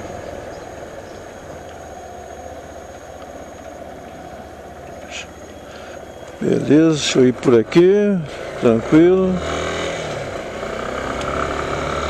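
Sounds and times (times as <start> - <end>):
motorcycle engine idling: 0.0 - 9.6.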